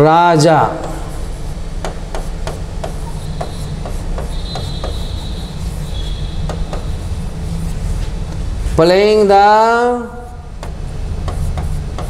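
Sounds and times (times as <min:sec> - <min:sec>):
pen tapping on a board: 0:01.8 - 0:05.2, 0:06.4 - 0:07.0, 0:10.6 - 0:12.0
pen squeak: 0:03.0 - 0:07.0.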